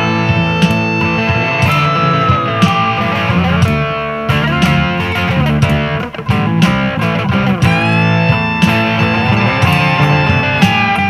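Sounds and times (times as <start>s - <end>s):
instrumental blues-rock: 0.0s - 11.0s
bending guitar note: 0.2s - 4.6s, 7.7s - 11.0s.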